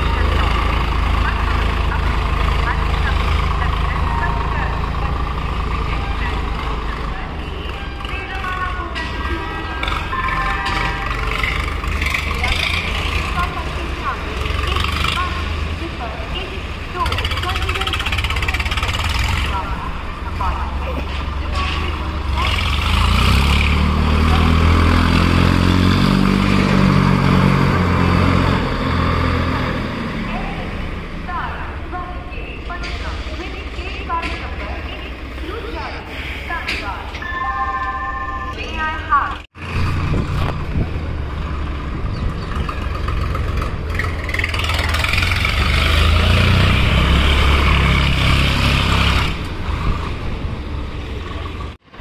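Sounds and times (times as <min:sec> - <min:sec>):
tractor diesel engine under load: 0:00.0 - 0:52.0.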